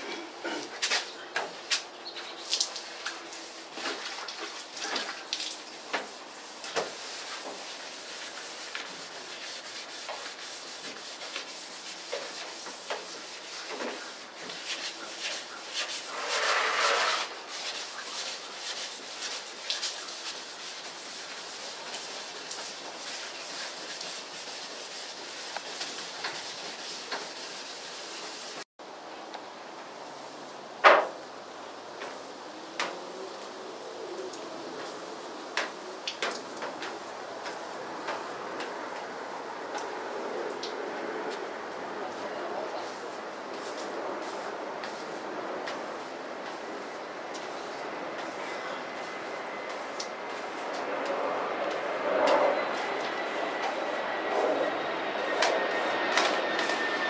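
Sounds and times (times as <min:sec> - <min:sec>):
wet sandpaper scratching: 0:01.0 - 0:28.6, 0:42.8 - 0:50.8, 0:55.3 - 0:57.0.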